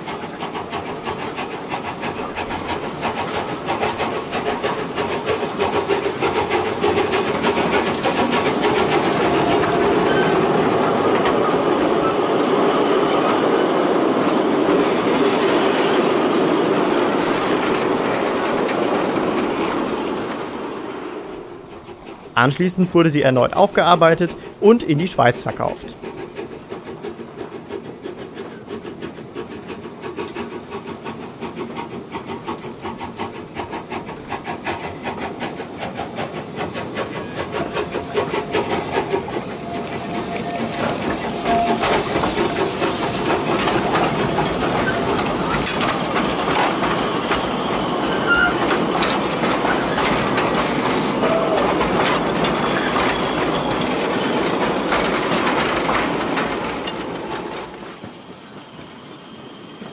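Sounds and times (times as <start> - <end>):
steam hissing: 0.0 - 59.9
steam locomotive exhaust beats: 0.0 - 59.9
wagons rattling with clicking wheels: 21.4 - 59.0.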